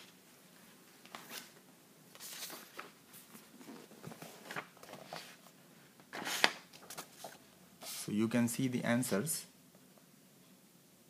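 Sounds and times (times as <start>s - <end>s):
paper rustling and scraping: 2.2s - 5.5s, 6.1s - 8.0s.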